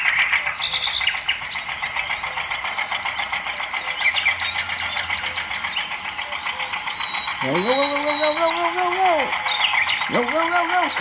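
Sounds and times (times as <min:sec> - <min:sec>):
toy motor and gearbox clatter: 0:00.0 - 0:11.0.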